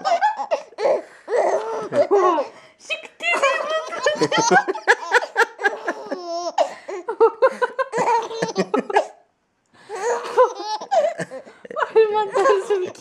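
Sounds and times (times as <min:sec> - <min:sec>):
baby giggling: 0:00.0 - 0:02.5, 0:03.3 - 0:09.2, 0:10.0 - 0:13.0.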